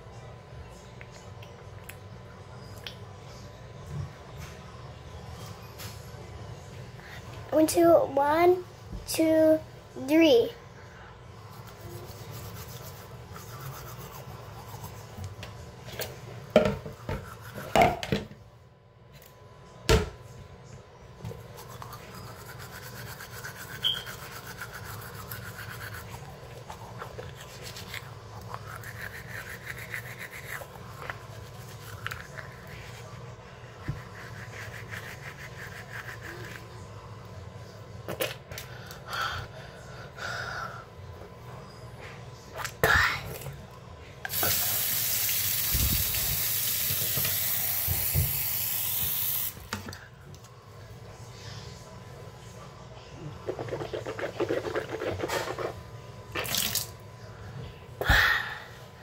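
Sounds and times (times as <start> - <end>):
toothbrush scrubbing teeth: 11.5 - 15.3, 21.5 - 36.8, 53.3 - 55.8.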